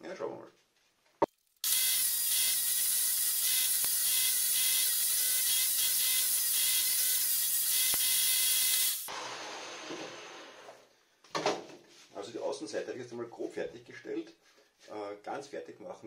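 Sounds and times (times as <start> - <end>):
electric drill motor whine: 1.6 - 9.1.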